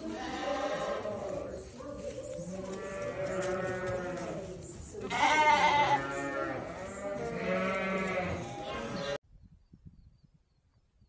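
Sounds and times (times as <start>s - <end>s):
lambs bleating: 0.0s - 1.5s, 2.6s - 9.2s.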